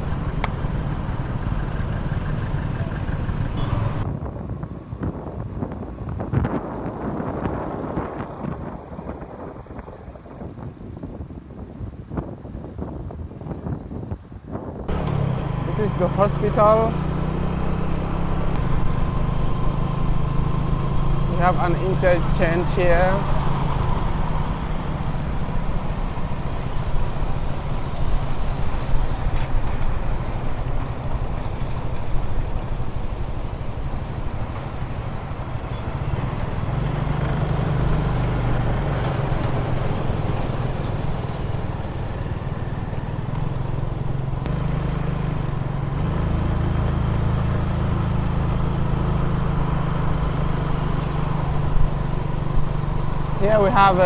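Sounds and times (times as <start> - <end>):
road and wind noise: 0.0 - 54.0
motorcycle engine running: 14.9 - 54.0.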